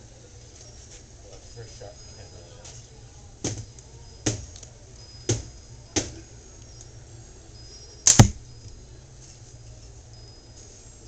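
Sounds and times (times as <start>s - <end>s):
slingshot cracks: 8.0s - 8.4s.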